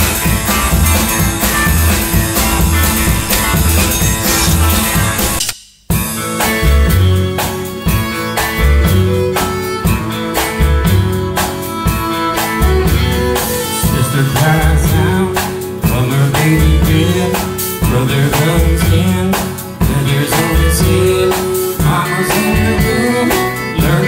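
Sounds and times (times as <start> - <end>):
country band playing: 0.0 - 5.4, 6.0 - 24.0
fiddle: 6.9 - 15.4, 20.0 - 24.0.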